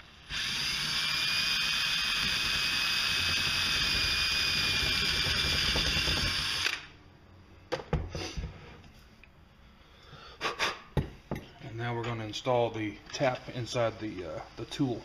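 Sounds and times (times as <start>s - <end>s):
electric drill running: 0.2s - 6.9s.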